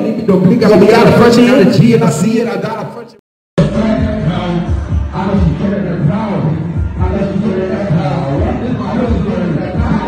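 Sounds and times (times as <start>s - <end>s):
music with singing and deep bass: 3.6s - 10.0s
person rapping: 3.6s - 10.0s.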